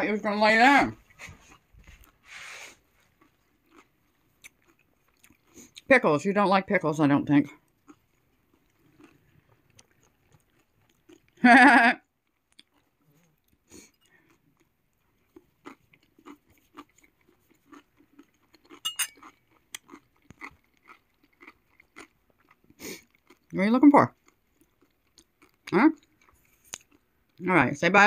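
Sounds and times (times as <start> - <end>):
person chewing pickles: 2.8 - 5.9, 7.5 - 11.4, 12.0 - 27.4.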